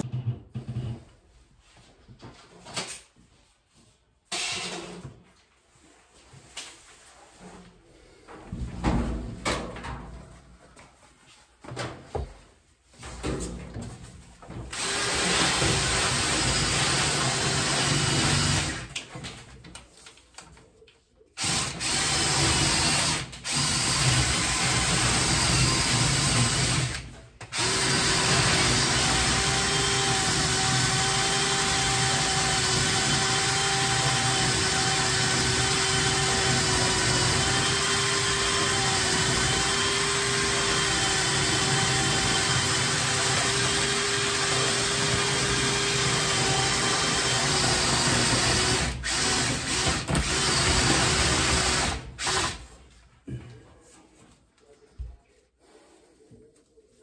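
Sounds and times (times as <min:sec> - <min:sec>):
cordless drill whining: 0:14.7 - 0:18.9, 0:21.4 - 0:52.6.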